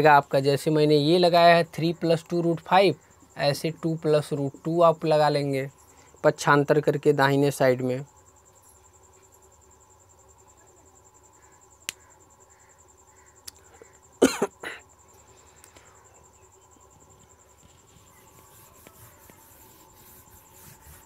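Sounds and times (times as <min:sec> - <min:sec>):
person coughing: 0:14.2 - 0:14.8.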